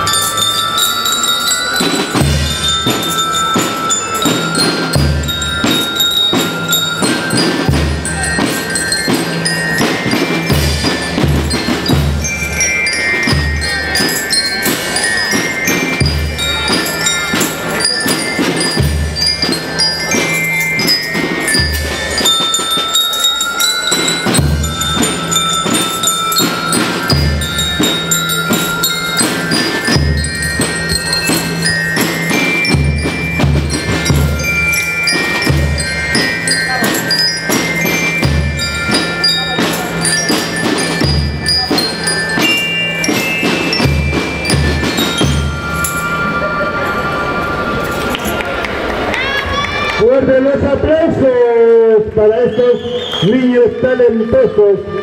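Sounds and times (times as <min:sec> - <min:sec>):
bell lyres playing a tune: 0:00.0 - 0:50.5.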